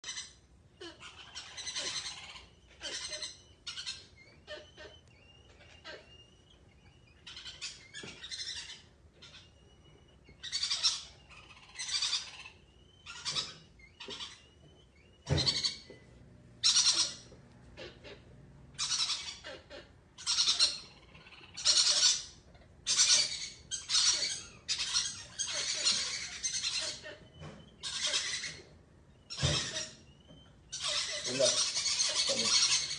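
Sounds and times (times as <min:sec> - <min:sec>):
monkey raspy calls: 0:16.6 - 0:27.2.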